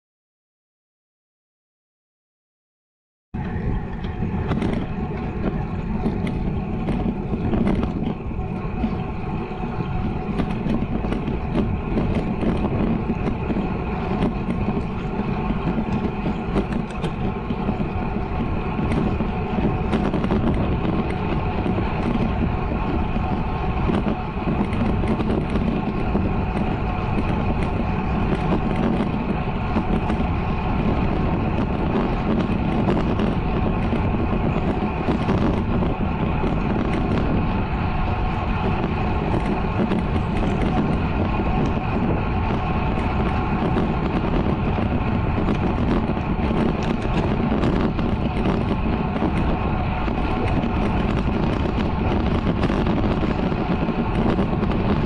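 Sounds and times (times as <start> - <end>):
wind rushing on microphone: 3.4 - 55.0.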